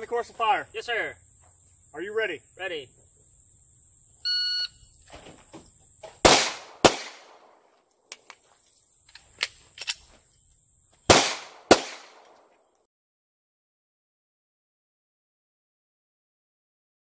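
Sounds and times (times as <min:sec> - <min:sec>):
shot timer start beep: 0:04.3 - 0:04.8
handgun shots with echo: 0:06.2 - 0:07.6, 0:11.1 - 0:12.4.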